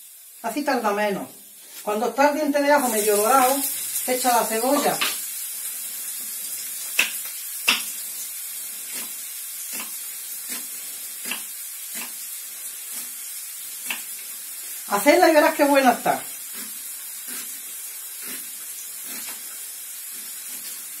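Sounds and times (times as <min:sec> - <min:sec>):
garlic sizzling in oil: 0:00.0 - 0:21.0
knife chopping on wooden board: 0:07.0 - 0:07.9.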